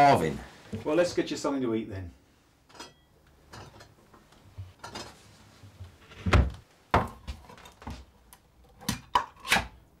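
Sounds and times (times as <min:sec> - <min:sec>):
cupboard door knocks and clunks: 0:06.3 - 0:07.1.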